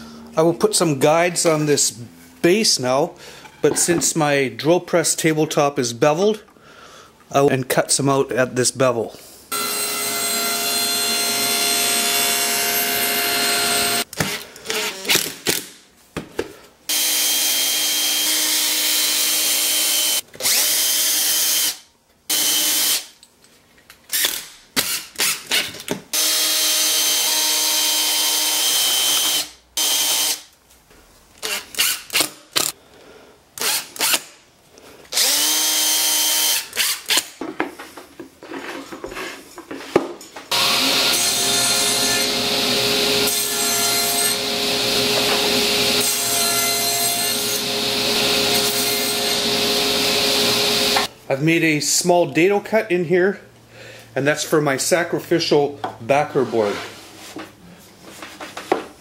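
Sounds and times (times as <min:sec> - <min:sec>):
table saw cutting: 0:09.5 - 0:14.1, 0:16.9 - 0:23.1, 0:26.2 - 0:30.4, 0:40.5 - 0:51.1
cordless drill driving screws: 0:24.1 - 0:30.4, 0:35.1 - 0:37.3.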